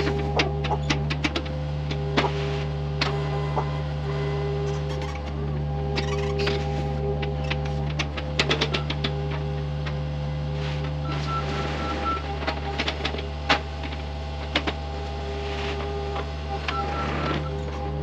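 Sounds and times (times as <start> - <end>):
machine clicks and knocks: 0.0 - 2.4, 7.2 - 10.0, 11.1 - 14.8
excavator diesel engine running: 0.0 - 18.0
hydraulic whine: 0.0 - 18.0.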